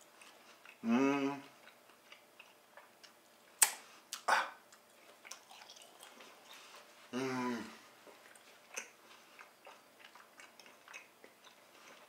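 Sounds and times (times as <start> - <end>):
person chewing steak: 0.0 - 0.8, 1.4 - 6.9, 7.9 - 12.0
sharp mouth click: 3.6 - 4.3.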